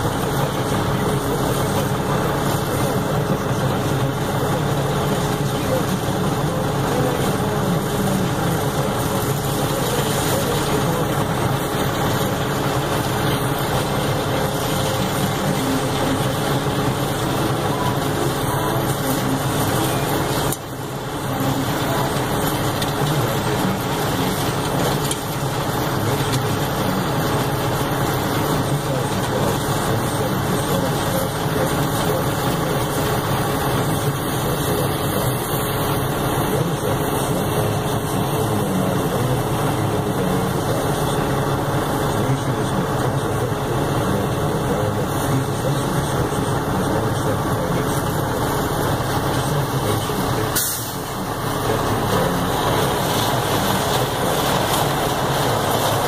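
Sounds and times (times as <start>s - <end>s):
snowblower running: 0.0s - 56.0s.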